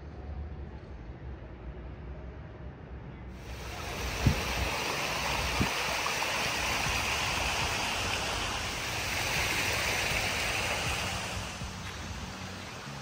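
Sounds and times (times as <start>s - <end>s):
water rushing: 3.4s - 13.0s.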